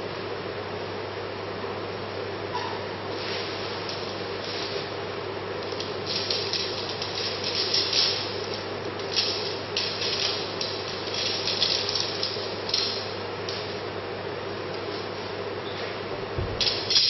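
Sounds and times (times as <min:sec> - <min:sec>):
room noise hum: 0:00.0 - 0:17.0.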